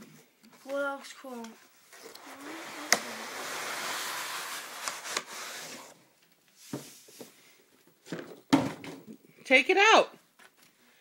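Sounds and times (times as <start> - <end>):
cardboard tube rustling: 1.9 - 6.0.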